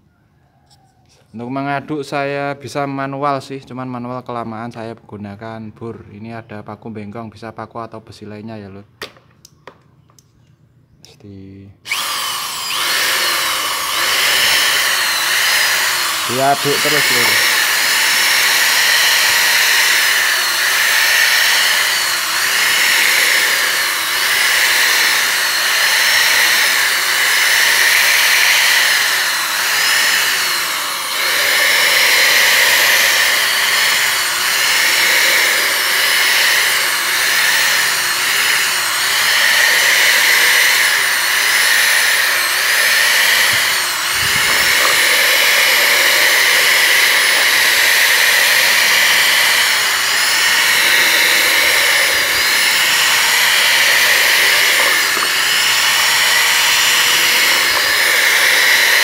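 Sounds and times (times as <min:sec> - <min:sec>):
electric drill stirring paint: 0:11.8 - 0:59.0.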